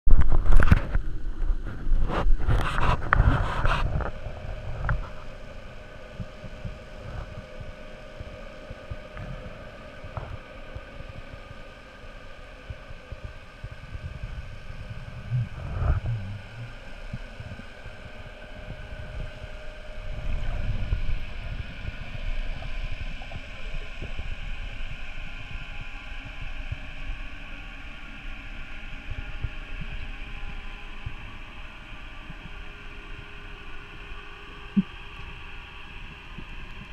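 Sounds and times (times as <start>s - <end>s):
faint steady hum: 0.1s - 36.9s
muffled underwater rumble: 0.1s - 36.9s.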